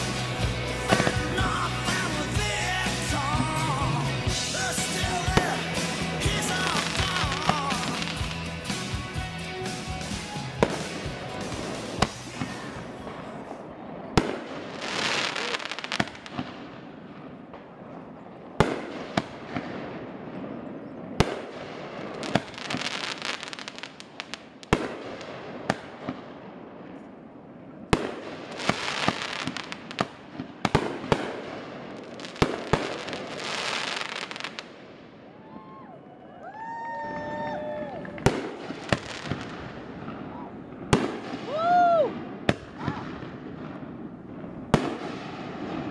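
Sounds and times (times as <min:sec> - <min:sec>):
noisy hiss: 0:00.0 - 0:17.1.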